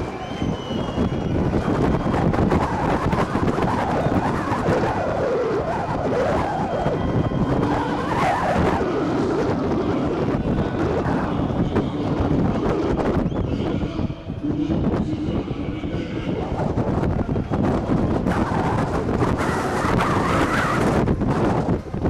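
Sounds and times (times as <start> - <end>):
stadium crowd shouting: 0.0 - 3.3
wind rumbling on microphone: 0.0 - 22.0.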